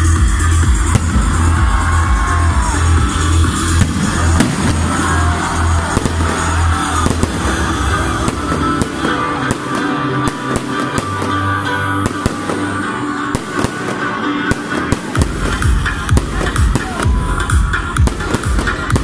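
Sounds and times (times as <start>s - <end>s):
loud music: 0.0s - 19.0s
fireworks bangs and crackles: 0.1s - 19.0s.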